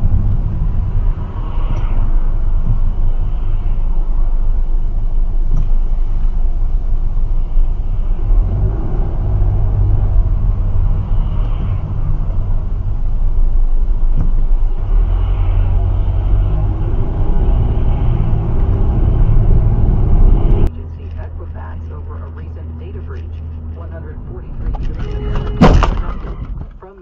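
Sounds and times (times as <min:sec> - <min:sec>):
car engine rumble: 0:00.0 - 0:27.0
road noise inside car: 0:00.0 - 0:27.0.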